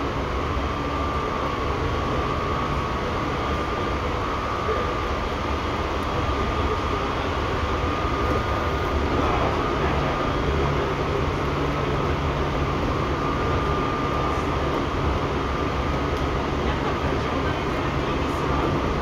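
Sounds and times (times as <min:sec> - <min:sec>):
electric train whine: 0:00.0 - 0:19.0
train rolling noise: 0:06.4 - 0:19.0.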